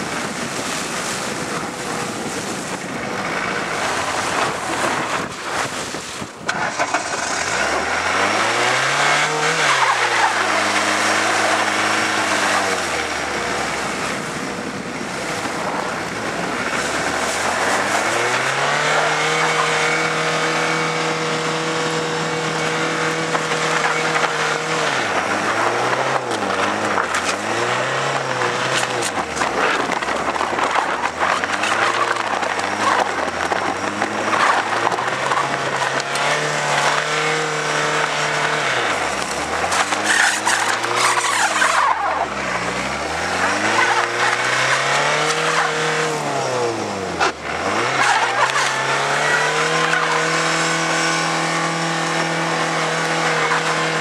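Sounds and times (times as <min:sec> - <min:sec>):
van engine revving: 0:00.0 - 0:54.0
wind and tyre noise: 0:00.0 - 0:54.0.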